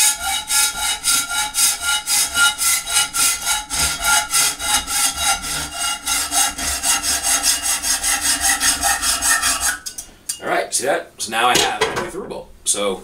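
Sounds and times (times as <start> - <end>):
hacksaw cutting threaded rod: 0.0 - 10.0.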